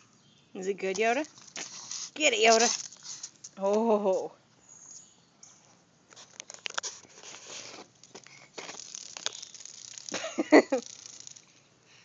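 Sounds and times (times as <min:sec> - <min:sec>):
dog claws scratching concrete: 0:01.0 - 0:03.6.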